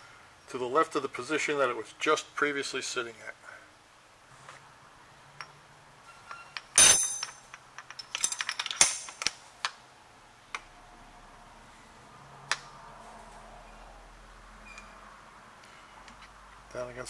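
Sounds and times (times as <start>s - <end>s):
metal pins clinking: 5.4s - 9.4s.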